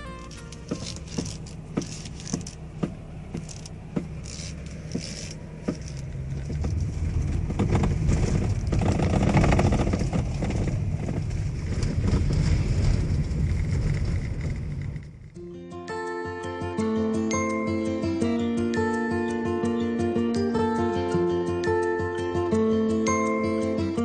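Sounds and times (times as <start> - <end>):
steering knocks: 0.0 - 15.4
van road and engine noise: 0.0 - 24.0.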